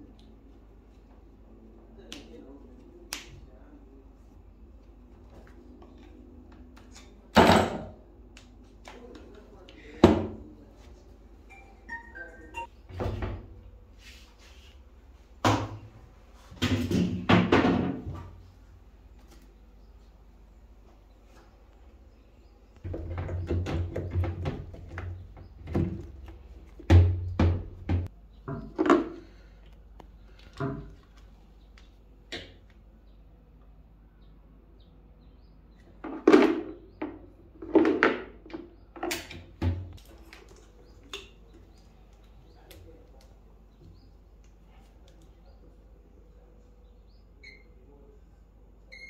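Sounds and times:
short high-pitched tones: 11.5s - 12.7s
hollow knocks on washing machine: 16.6s - 18.2s, 22.9s - 26.1s, 26.8s - 29.0s.

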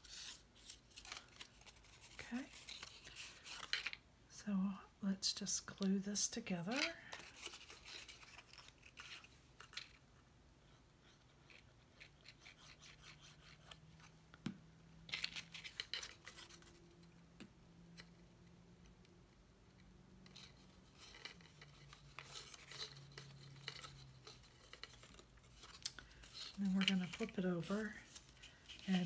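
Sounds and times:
cardstock rustling and crackling: 0.0s - 4.0s, 6.6s - 10.0s, 15.1s - 17.2s, 20.3s - 29.0s
faint steady hum: 0.0s - 29.0s.

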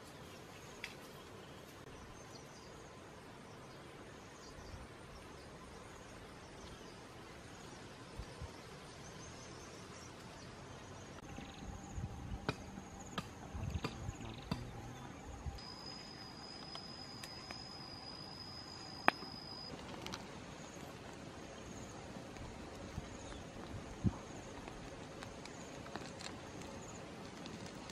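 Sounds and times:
insects chirping: 0.4s - 27.9s
high insect whine: 11.2s - 24.6s.

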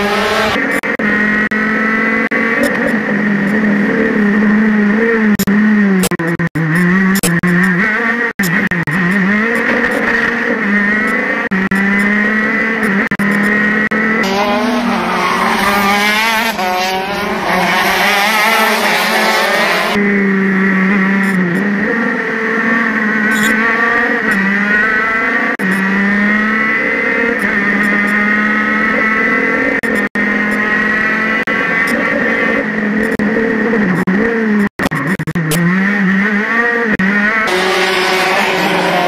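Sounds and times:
karts racing past: 0.0s - 5.3s, 9.3s - 23.0s, 35.6s - 39.0s
kart engines at high revs: 0.0s - 39.0s.

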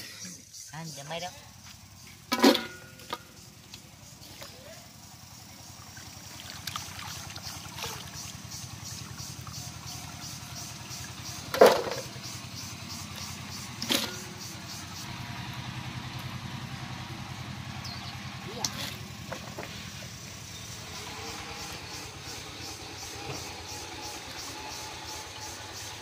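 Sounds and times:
engine running: 1.4s - 26.0s
water splashes: 5.6s - 11.9s
potatoes sloshing in water: 5.9s - 8.4s.

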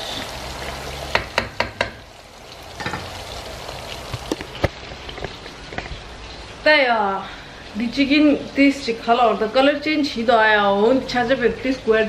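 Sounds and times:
chicken deep-frying in oil: 0.0s - 12.0s.

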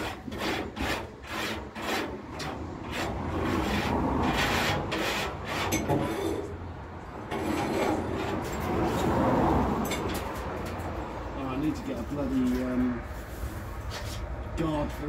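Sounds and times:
sandpaper rasping on steel: 0.0s - 6.3s.

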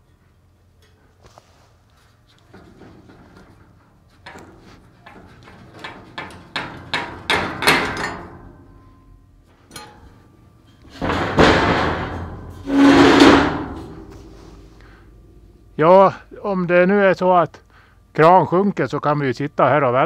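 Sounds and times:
heavy steel grinding scrapes: 10.7s - 14.8s
metal squeal: 12.3s - 14.6s.

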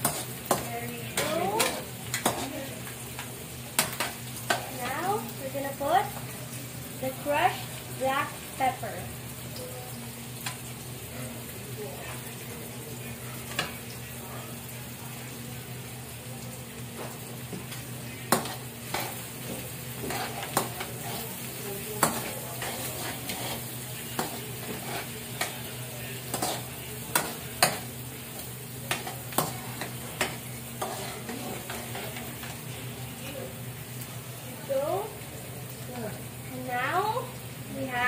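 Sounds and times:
onion sizzling in hot oil: 0.0s - 38.0s.

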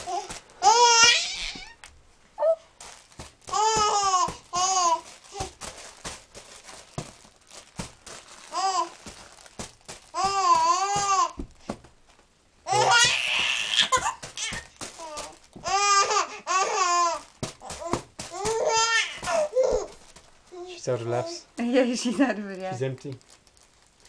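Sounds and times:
baby babbling and squealing: 0.0s - 1.8s, 2.4s - 2.7s, 12.7s - 21.4s.

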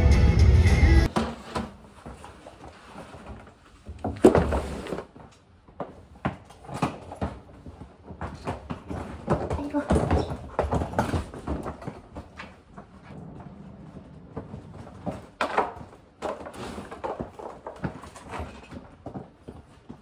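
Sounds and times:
music: 0.0s - 1.1s
knocks and rustling: 1.1s - 20.0s.

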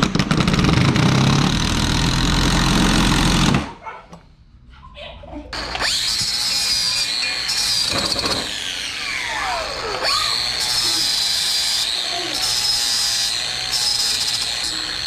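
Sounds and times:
angle grinder cutting steel: 5.6s - 15.0s.

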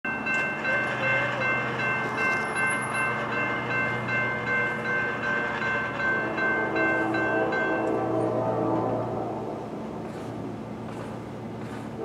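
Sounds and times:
crossing warning bell ringing: 0.1s - 9.2s
low hum of train: 0.1s - 12.0s.

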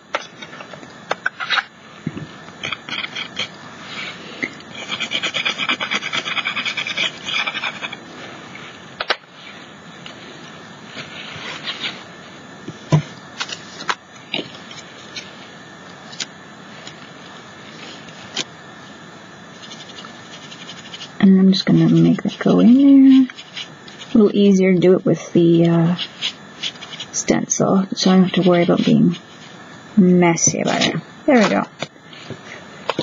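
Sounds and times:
pastel scraping on plaster: 2.6s - 8.0s.

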